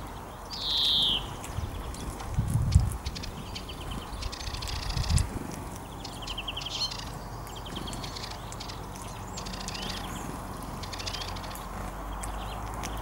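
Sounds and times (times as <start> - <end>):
small birds twittering: 0.0 - 13.0
sharp clicks: 4.3 - 13.0.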